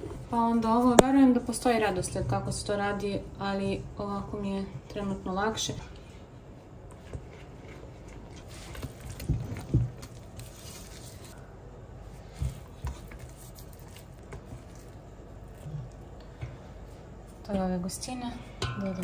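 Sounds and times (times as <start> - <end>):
fork knocking against metal pot: 18.6 - 19.0.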